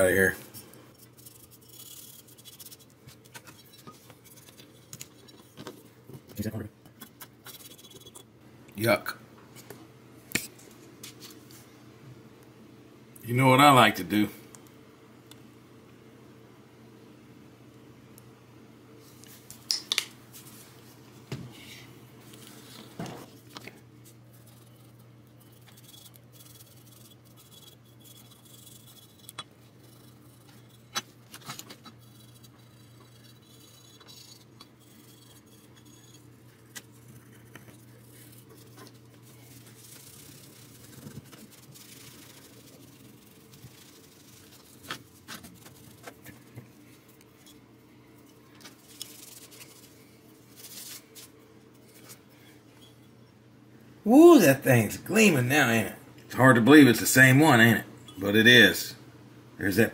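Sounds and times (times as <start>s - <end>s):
low steady hum: 0.0s - 59.9s
rag rubbing metal plate: 24.4s - 46.2s.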